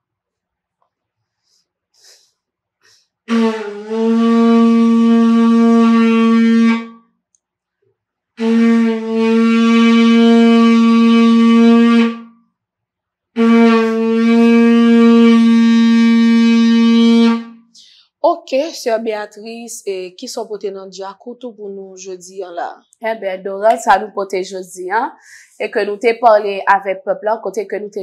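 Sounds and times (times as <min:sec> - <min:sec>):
conch shell trumpet blowing: 0:03.3 - 0:07.1, 0:08.4 - 0:12.4, 0:13.4 - 0:17.7.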